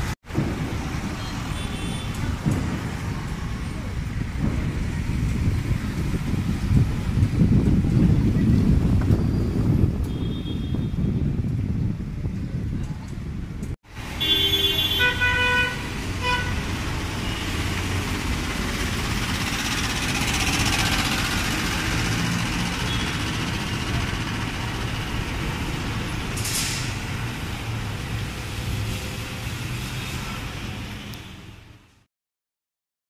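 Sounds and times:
passing vehicles engine and tyres: 0.0 - 32.1
vehicle horn tooting: 10.0 - 11.0, 14.2 - 16.6.

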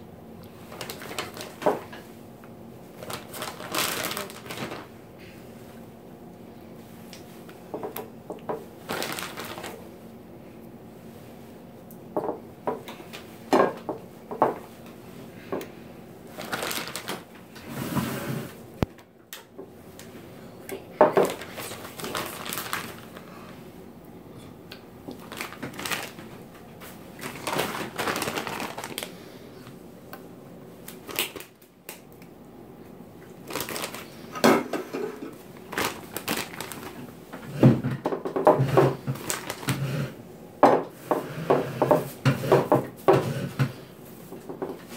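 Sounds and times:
plastic bags rustling: 0.5 - 5.7, 8.5 - 10.0, 16.2 - 19.0, 21.0 - 23.7, 25.0 - 29.8, 30.8 - 31.7, 33.3 - 40.2.

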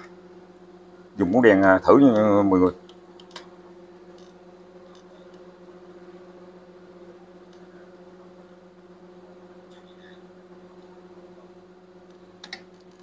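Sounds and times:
low steady hum: 0.0 - 13.0
faint clicks of wires handled: 2.1 - 3.5, 4.1 - 5.5, 12.0 - 13.0.

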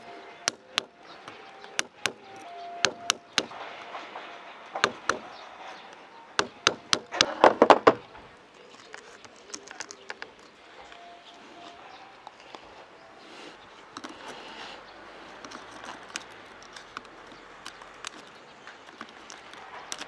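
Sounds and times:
tool scratching eggshell: 0.0 - 3.6, 4.7 - 7.6, 8.5 - 10.6, 13.8 - 20.0
sharp clicks and ticks: 0.0 - 12.6, 13.8 - 14.6, 15.2 - 20.0.

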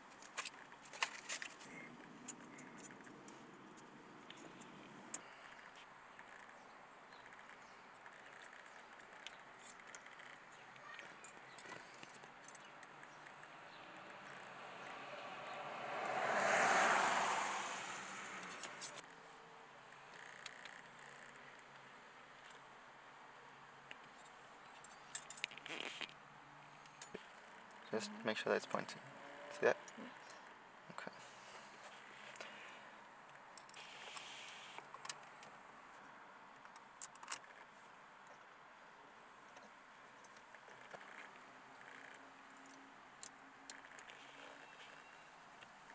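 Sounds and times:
vehicle passing by: 13.6 - 19.0, 27.9 - 30.2.

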